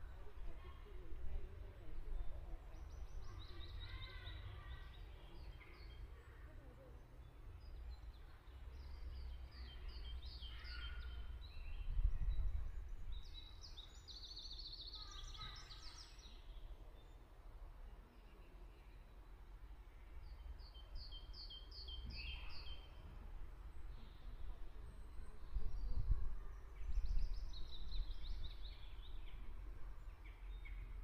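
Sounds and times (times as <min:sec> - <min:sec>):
songbirds chirping: 0:00.0 - 0:31.0.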